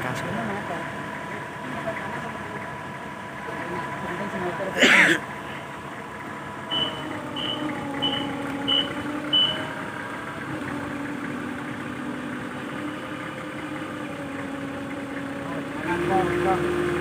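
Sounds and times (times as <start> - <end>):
forklift engine running: 0.0 - 17.0
high warning beeps: 6.7 - 9.7.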